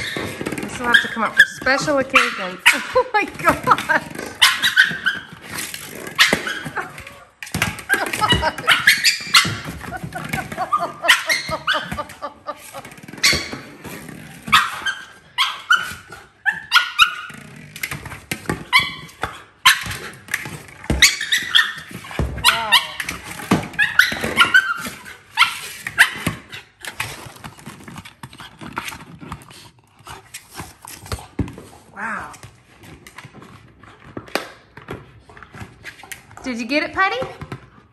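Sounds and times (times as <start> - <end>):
dog barking yipping and whining: 0.9 - 3.0, 4.4 - 5.4, 6.2 - 7.2, 7.9 - 10.0, 10.6 - 12.3, 13.2 - 13.6, 14.5 - 17.3, 18.6 - 20.1, 21.0 - 23.0, 23.7 - 26.4
ball knocking: 3.2 - 15.0.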